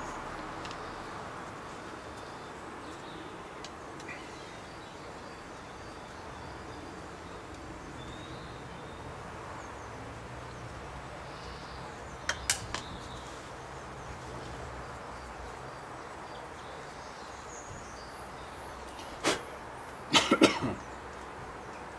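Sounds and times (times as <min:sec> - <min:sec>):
outdoor background noise: 0:00.0 - 0:21.9
faint bird chirps: 0:01.8 - 0:08.9.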